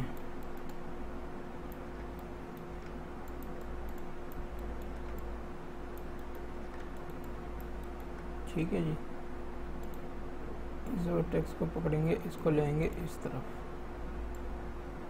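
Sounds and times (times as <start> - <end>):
computer mouse clicks: 0.0 - 0.8, 1.7 - 5.3, 5.9 - 8.3, 9.8 - 10.1
electrical hum: 0.0 - 15.0
low room rumble: 0.0 - 15.0.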